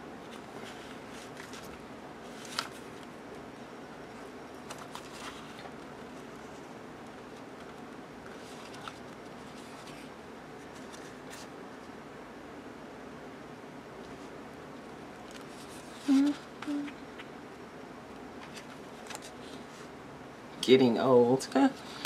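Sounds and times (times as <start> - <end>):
plastic sheets rustling and crackling: 0.3 - 3.2, 4.6 - 11.5.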